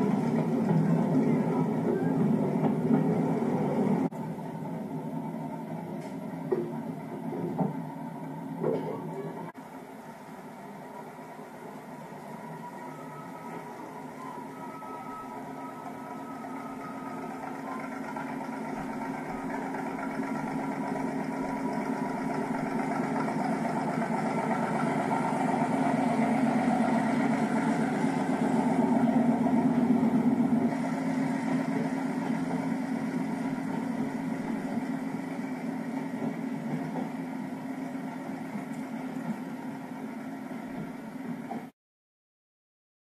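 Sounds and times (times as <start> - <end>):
diesel locomotive engine hum: 0.0 - 41.7.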